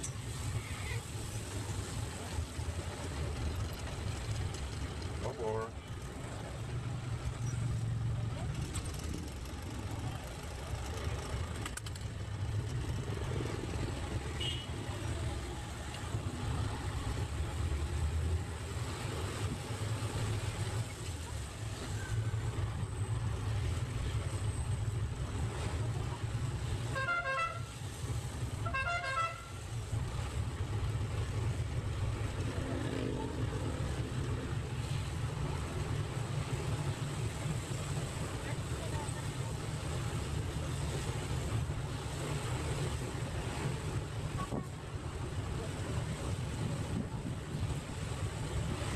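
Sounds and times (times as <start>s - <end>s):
diesel engine drone: 0.0s - 48.9s
road noise: 0.0s - 48.9s
vehicle horn honking: 14.4s - 14.7s, 26.9s - 27.7s, 28.6s - 29.5s.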